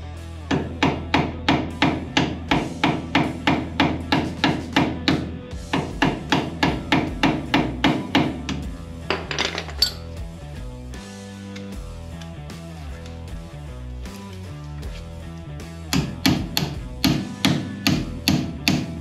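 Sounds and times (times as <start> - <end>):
background music: 0.0 - 19.0
hammer striking metal: 0.5 - 10.1, 15.9 - 19.0.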